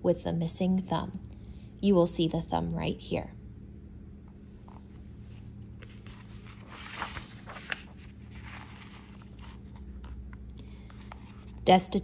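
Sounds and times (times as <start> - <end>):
book pages rustling: 4.6 - 11.7
sharp paper crackles: 5.8 - 10.0.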